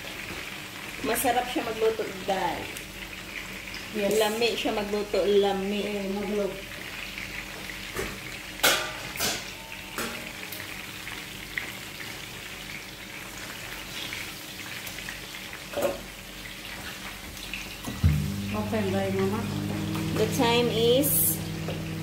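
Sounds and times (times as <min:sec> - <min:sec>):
vegetables sizzling in oil: 0:00.0 - 0:22.0.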